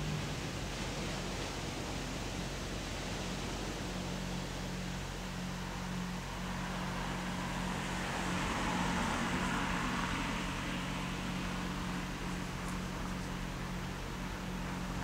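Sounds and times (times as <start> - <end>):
steady low hum: 0.0 - 15.0
car passing: 4.5 - 15.0.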